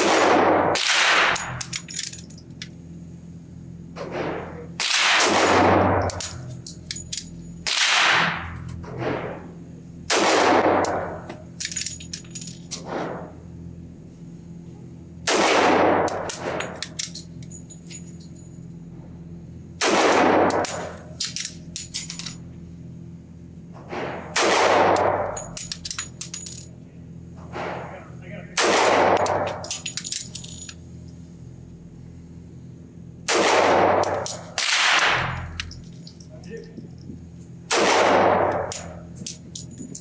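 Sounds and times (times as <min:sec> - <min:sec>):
pistol shots echoing indoors: 0:00.0 - 0:01.8, 0:04.1 - 0:06.6, 0:07.6 - 0:09.3, 0:10.1 - 0:11.3, 0:15.2 - 0:17.0, 0:19.8 - 0:21.4, 0:23.9 - 0:25.8, 0:28.6 - 0:29.9, 0:33.2 - 0:35.6, 0:37.7 - 0:39.0.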